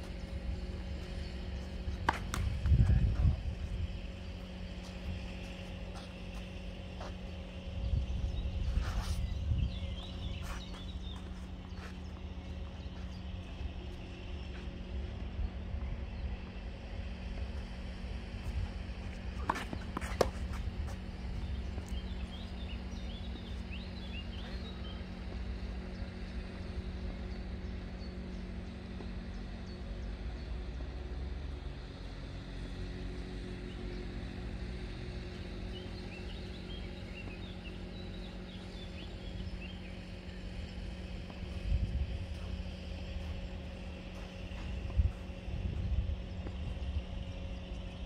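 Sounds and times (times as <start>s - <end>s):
birds chirping: 0.0s - 30.7s, 33.3s - 48.0s
steady low hum: 0.0s - 48.0s
tennis ball struck by racket: 2.0s - 2.7s, 19.4s - 20.7s.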